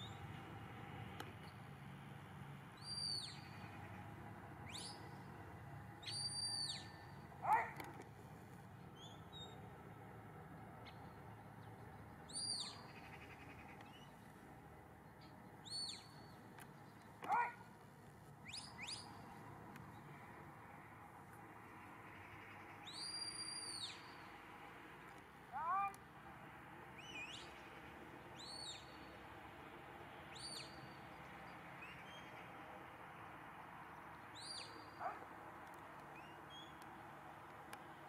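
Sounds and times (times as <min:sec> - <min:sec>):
lower rising whistle calls: 0:06.0 - 0:07.1, 0:22.9 - 0:24.2.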